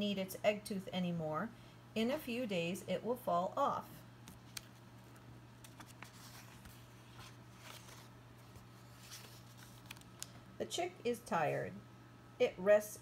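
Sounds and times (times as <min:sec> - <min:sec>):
low steady hum: 0:00.0 - 0:13.0
paper page turning: 0:04.3 - 0:10.4
soft paper ticks: 0:09.6 - 0:10.3.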